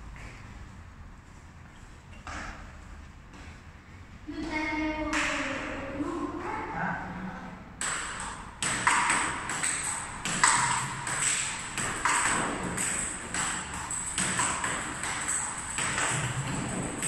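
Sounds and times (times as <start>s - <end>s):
ball bouncing on table: 7.8s - 17.0s
ball hitting paddles: 7.8s - 17.0s.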